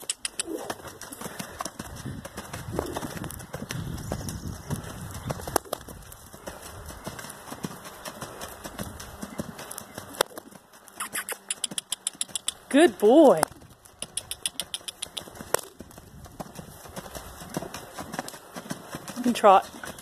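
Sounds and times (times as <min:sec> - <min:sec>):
hoofbeats on sand: 0:00.0 - 0:20.0
sharp hoof clicks: 0:00.0 - 0:20.0.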